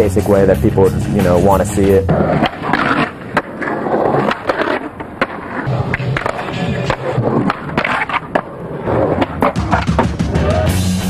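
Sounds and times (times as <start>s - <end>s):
background music: 0.0s - 2.1s, 9.4s - 11.0s
skateboard wheels rolling on concrete: 0.0s - 11.0s
skateboard pops and landings: 2.1s - 10.6s.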